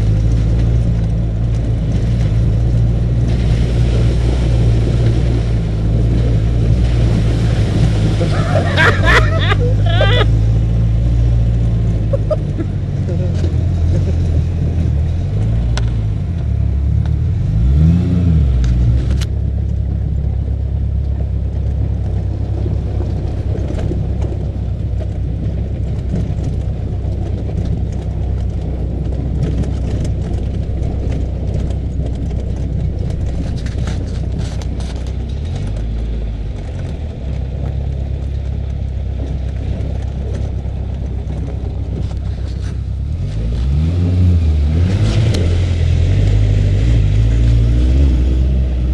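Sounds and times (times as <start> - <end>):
buggy engine revving: 0.0 - 48.9
clicks and rattles: 21.0 - 43.5.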